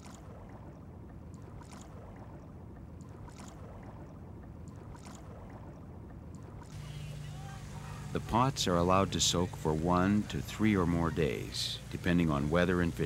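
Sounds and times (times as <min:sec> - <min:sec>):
faint clicks: 0:00.0 - 0:06.9
low rumbling ambience: 0:05.2 - 0:13.0.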